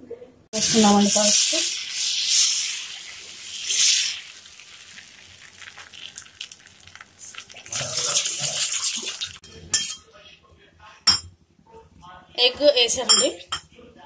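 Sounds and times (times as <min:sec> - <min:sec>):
batter hissing on hot pan: 0:00.6 - 0:09.4.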